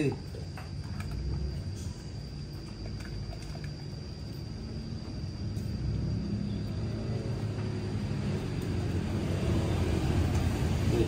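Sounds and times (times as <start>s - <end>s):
low steady engine rumble: 0.0s - 11.0s.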